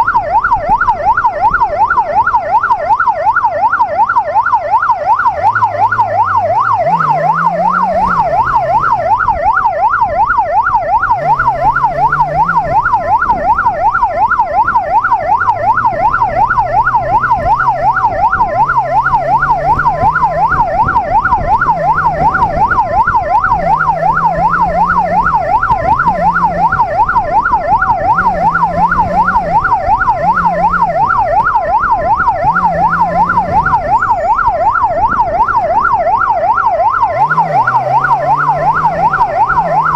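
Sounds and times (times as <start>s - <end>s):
electronic siren yelping: 0.0s - 39.9s
motorcycle engine accelerating: 5.2s - 9.5s, 10.9s - 34.9s, 37.1s - 39.9s.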